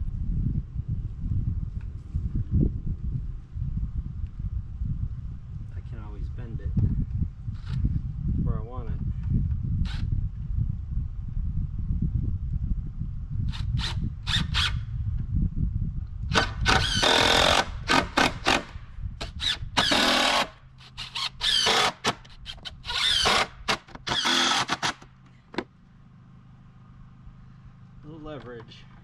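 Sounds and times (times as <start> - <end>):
power driver whirring: 13.6 - 14.8, 16.3 - 25.1.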